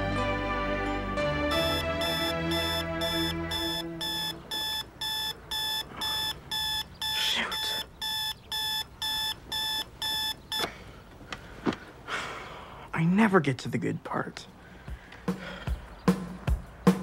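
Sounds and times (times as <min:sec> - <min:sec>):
alarm clock beeping: 0:01.5 - 0:10.7.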